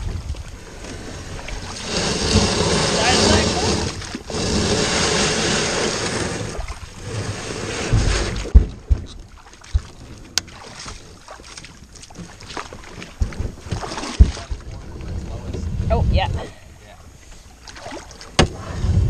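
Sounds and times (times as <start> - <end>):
dull low thumps: 7.8 - 10.2, 13.1 - 16.5.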